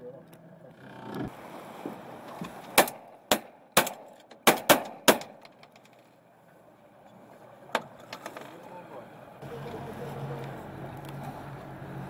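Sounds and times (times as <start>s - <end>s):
shotgun shots: 2.8s - 5.4s.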